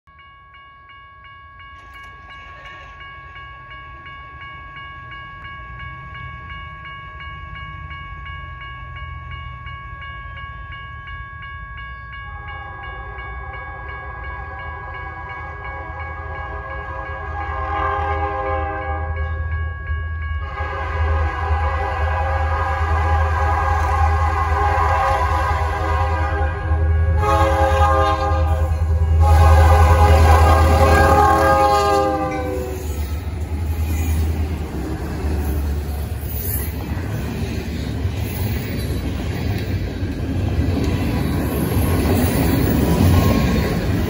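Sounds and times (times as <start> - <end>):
crossing signal bell ringing: 0.1 - 39.9
train rumble: 0.2 - 44.0
locomotive horn blasts: 12.7 - 19.2, 20.4 - 33.0.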